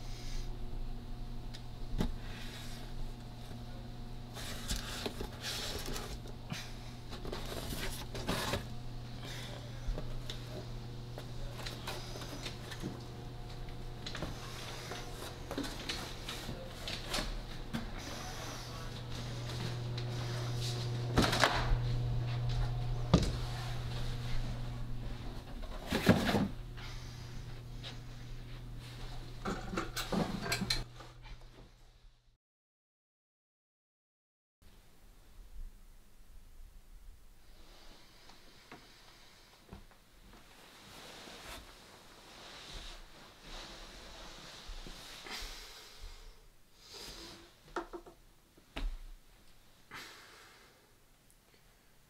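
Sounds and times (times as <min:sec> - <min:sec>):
steady low hum: 0:00.0 - 0:32.3
cardboard box scraping and rustling: 0:07.2 - 0:08.7.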